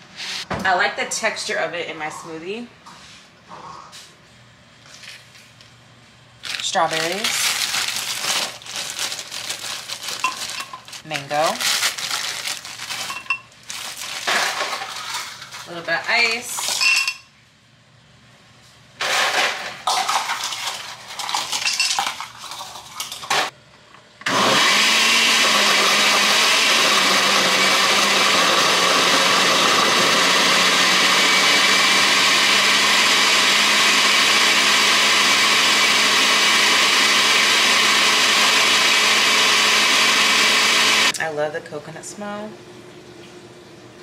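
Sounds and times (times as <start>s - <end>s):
blender blending with ice: 6.4s - 16.6s, 19.0s - 23.5s, 24.3s - 41.2s.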